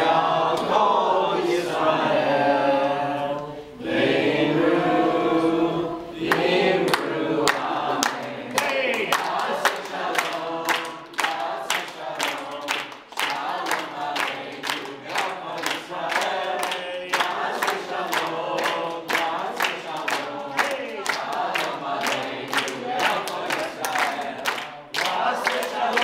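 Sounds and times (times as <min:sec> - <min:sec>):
group singing unaccompanied: 0:00.0 - 0:26.0
rhythmic hand-clapping: 0:06.2 - 0:26.0.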